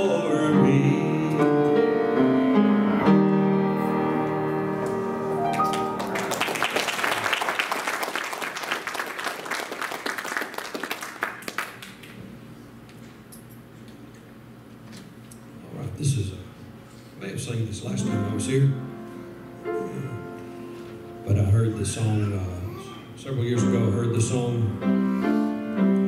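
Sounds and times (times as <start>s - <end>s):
piano playing gospel chords: 0.0s - 7.1s, 17.7s - 26.0s
congregation applauding: 5.4s - 12.2s.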